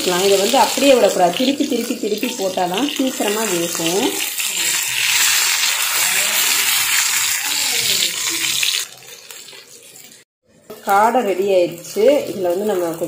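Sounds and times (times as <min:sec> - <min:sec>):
fish sizzling in oil: 0:00.0 - 0:13.0.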